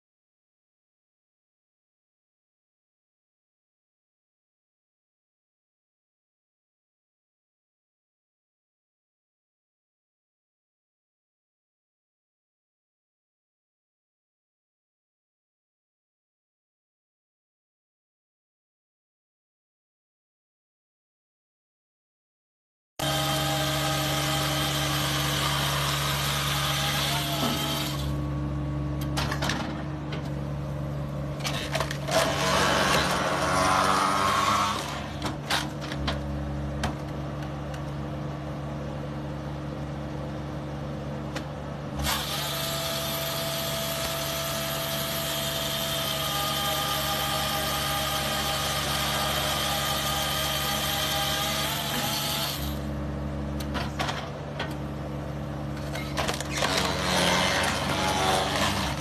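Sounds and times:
log cutting and splitting: 0:23.0 - 0:28.2, 0:31.4 - 0:35.9, 0:56.1 - 0:59.0
engine and hydraulic drone: 0:23.0 - 0:59.0.

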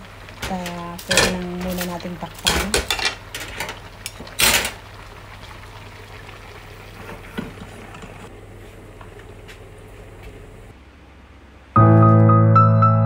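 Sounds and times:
pan simmering with bubbling hiss: 0:00.0 - 0:10.8
cookware clatter: 0:00.4 - 0:04.8.

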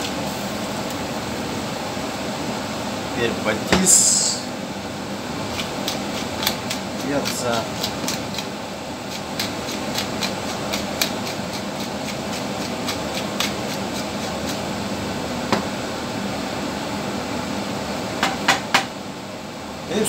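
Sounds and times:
ventilation hum: 0:00.0 - 0:20.0
utensil clicking against pot: 0:05.5 - 0:08.5, 0:09.1 - 0:14.6.

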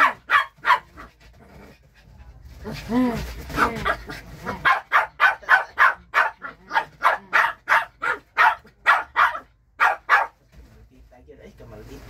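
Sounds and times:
puppy barking rapidly: 0:00.0 - 0:01.2, 0:03.5 - 0:10.4.

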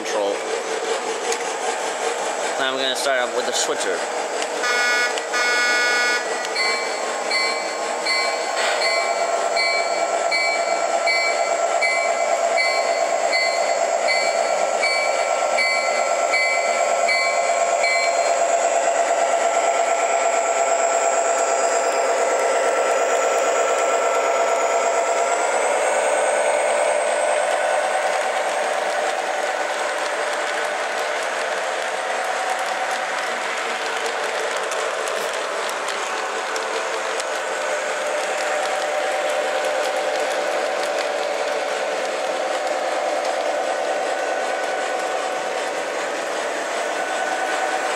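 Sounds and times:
model locomotive horn blast: 0:04.6 - 0:06.3
locomotive bell ringing: 0:04.6 - 0:18.4.

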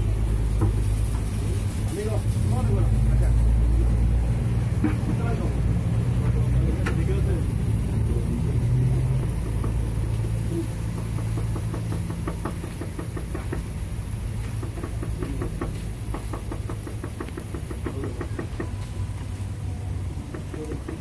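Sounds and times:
utensils knocking on steel griddle: 0:04.8 - 0:05.5, 0:09.1 - 0:13.8, 0:14.4 - 0:18.8, 0:20.1 - 0:21.0.

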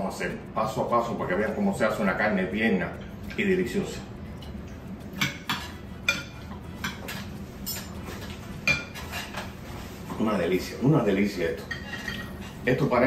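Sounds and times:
cutlery clinking against dish: 0:05.2 - 0:09.5, 0:11.6 - 0:12.6.

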